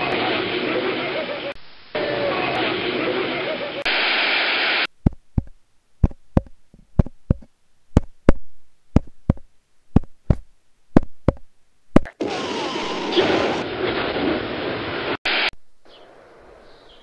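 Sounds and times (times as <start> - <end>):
tv static hiss: 0.0 - 8.2, 11.6 - 15.8.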